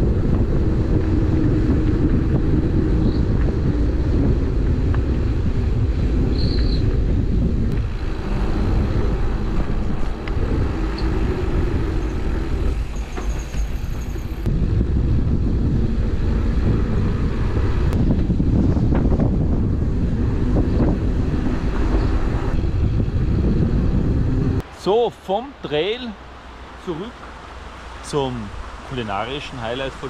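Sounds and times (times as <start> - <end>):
wind rumble on microphone: 0.0 - 24.7
high squeaks: 12.0 - 14.4.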